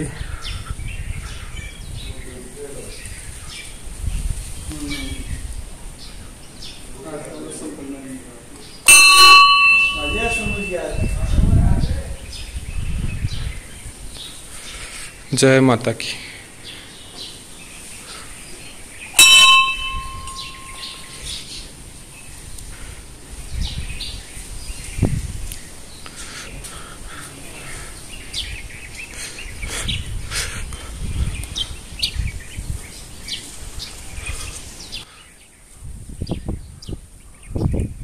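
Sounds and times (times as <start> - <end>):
birds chirping: 0.0 - 38.0
temple bell ringing: 8.9 - 11.2, 19.2 - 21.2
low rumbles on microphone: 10.2 - 14.2.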